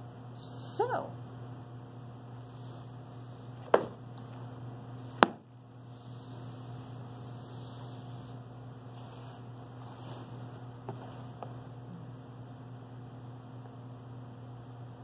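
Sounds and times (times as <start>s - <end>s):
low electrical hum: 0.0s - 15.0s
cardboard box knocking on table: 3.6s - 4.0s, 5.2s - 5.4s.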